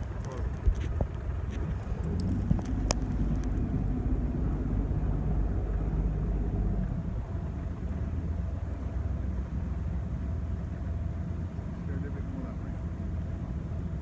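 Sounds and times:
boat engine low rumble: 0.0s - 14.0s.

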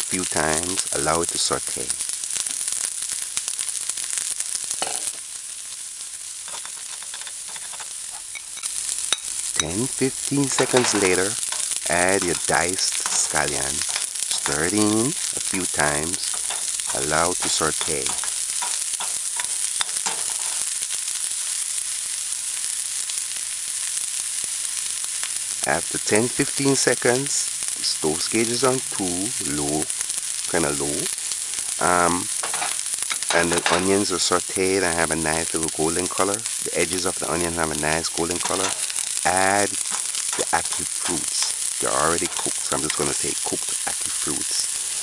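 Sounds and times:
onions sizzling in a skillet: 0.0s - 45.0s
metal spoon scraping pan: 6.4s - 9.7s, 10.4s - 20.7s, 32.3s - 33.9s, 38.1s - 43.1s.

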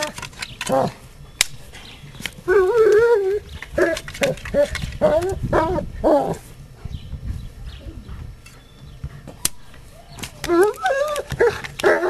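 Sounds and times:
dog whining: 2.4s - 6.4s, 10.2s - 12.0s.

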